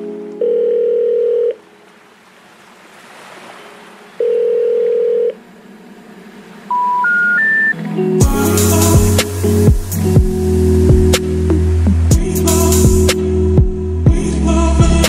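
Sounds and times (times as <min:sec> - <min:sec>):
long telephone beeps: 0:00.4 - 0:01.6, 0:04.2 - 0:05.4, 0:06.7 - 0:07.8
short rising telephone beeps: 0:06.7 - 0:07.8
faint hiss: 0:07.8 - 0:13.5.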